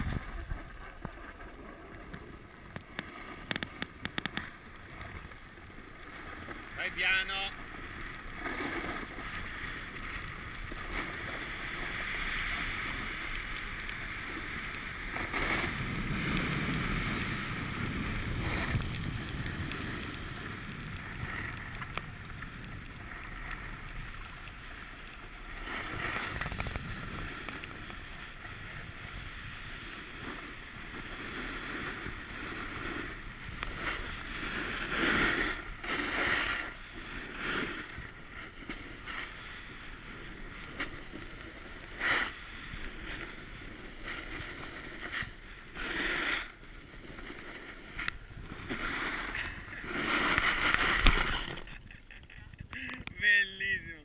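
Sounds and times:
wind rushing over microphone: 0.0 - 0.6, 15.4 - 23.1
ski edges scraping on snow: 1.0 - 53.8.

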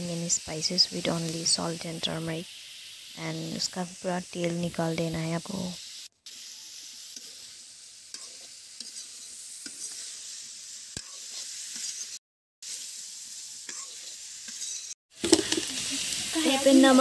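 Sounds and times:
meat sizzling in oil: 0.0 - 17.0
spatula scraping a pan: 5.9 - 12.9, 13.6 - 16.1.

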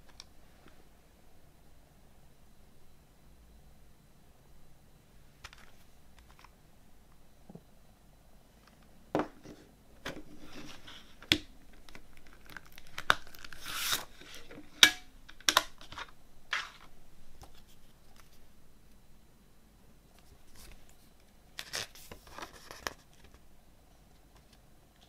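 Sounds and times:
rustling scrape: 9.4 - 11.2.

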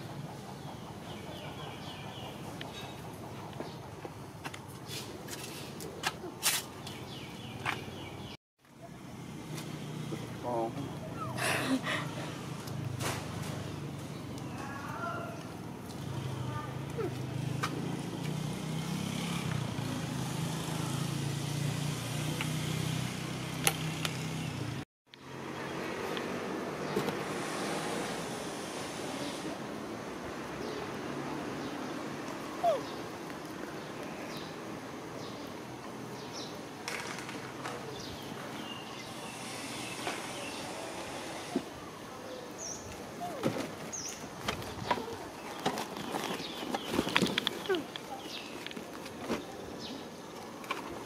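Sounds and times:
birds chirping: 0.0 - 8.4, 32.6 - 36.7, 37.7 - 50.7.

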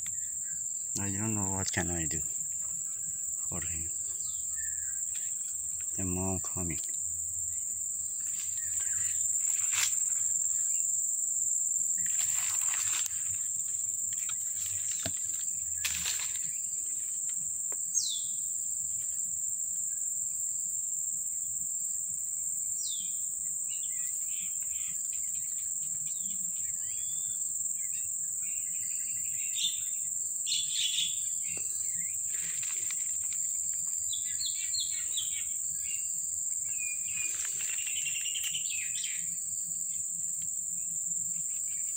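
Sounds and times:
high-pitched insect drone: 0.0 - 41.9.

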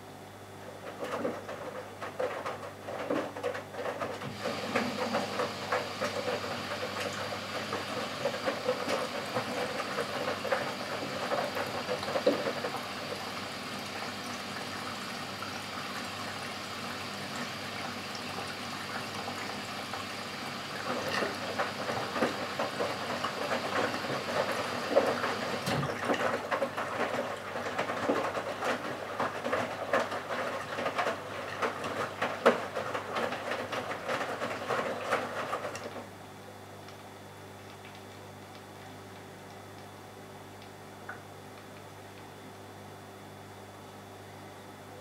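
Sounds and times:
laundry splashing in drum: 0.8 - 36.1.

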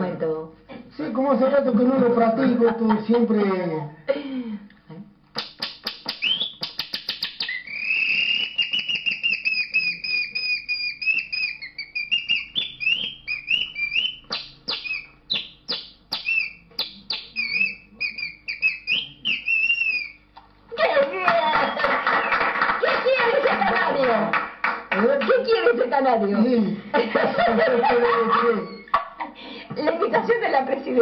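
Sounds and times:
man imitating bird song: 5.4 - 20.2.

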